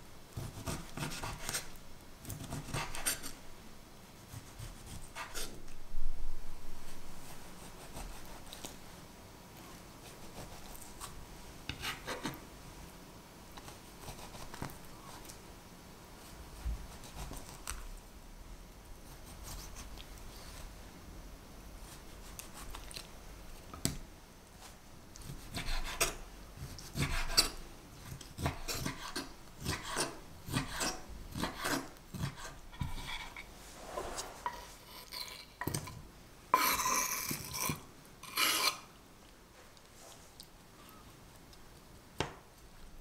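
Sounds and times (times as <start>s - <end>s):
blade scraping cutting board: 28.4s - 35.8s, 36.6s - 38.9s.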